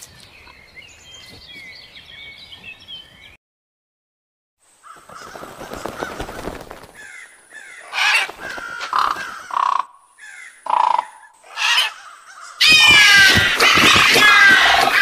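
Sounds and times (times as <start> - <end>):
crows cawing: 4.8 - 15.0.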